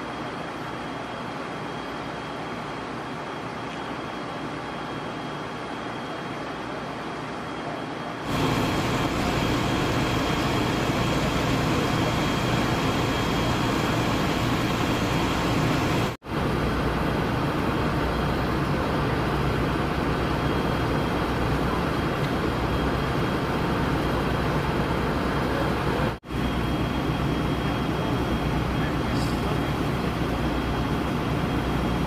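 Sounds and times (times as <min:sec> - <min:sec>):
street noise: 0:03.4 - 0:32.0
heavy vehicle engines idling: 0:08.3 - 0:32.0.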